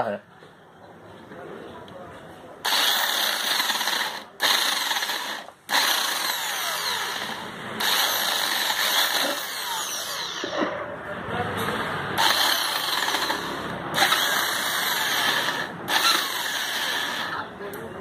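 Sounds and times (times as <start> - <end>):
electric drill grinding metal: 2.7 - 10.6, 12.2 - 17.4.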